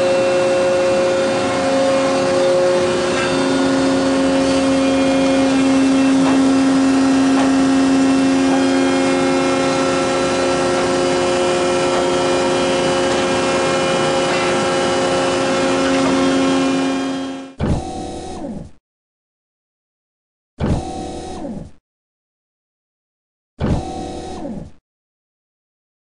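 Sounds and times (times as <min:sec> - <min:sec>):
hydraulic motor hum and whine: 0:00.0 - 0:18.6, 0:23.6 - 0:24.8.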